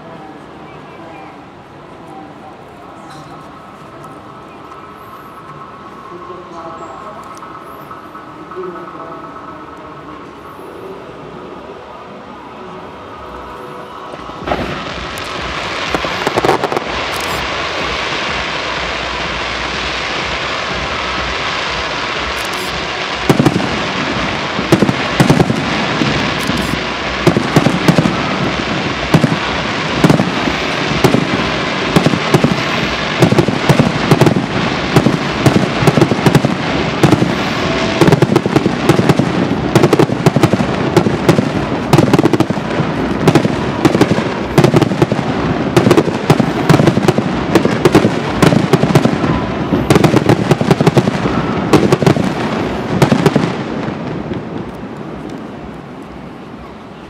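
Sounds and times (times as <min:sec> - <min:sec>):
steady rushing hiss: 0:00.0 - 0:57.0
fireworks bangs and crackles: 0:14.0 - 0:56.7.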